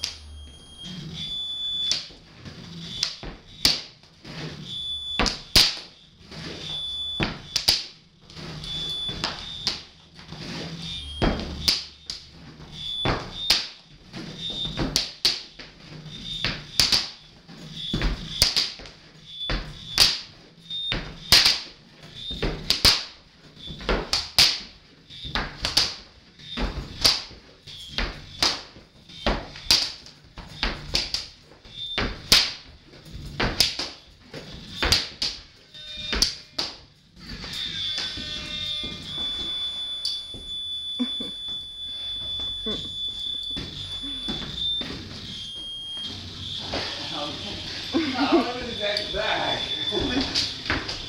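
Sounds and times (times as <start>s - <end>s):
low hum: 0.0s - 3.6s
high electronic tone: 0.0s - 3.7s, 4.4s - 7.6s, 8.4s - 13.6s, 37.2s - 51.0s
leather belt slapping floor: 7.2s - 10.6s, 11.2s - 17.3s, 17.9s - 35.5s.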